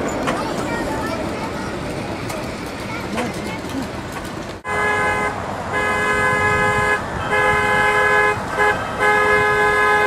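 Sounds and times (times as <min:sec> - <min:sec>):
low rumble of train running: 0:00.0 - 0:10.0
multi-tone train horn blasts: 0:04.6 - 0:10.0.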